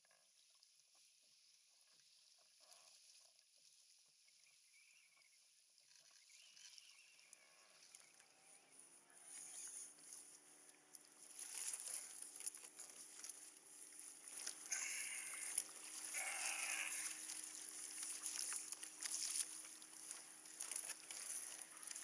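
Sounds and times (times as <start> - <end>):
water slapping against kayak hull: 17.0 - 22.0.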